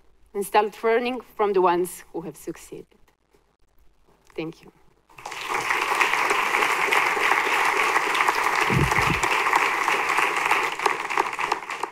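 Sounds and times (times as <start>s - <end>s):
audience applauding: 5.1s - 11.9s
short low thump: 8.7s - 9.2s.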